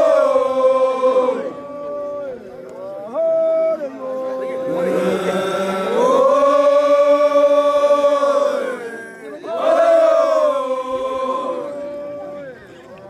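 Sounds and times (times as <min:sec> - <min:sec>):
group chanting in long held notes: 0:00.0 - 0:03.3, 0:04.0 - 0:12.3.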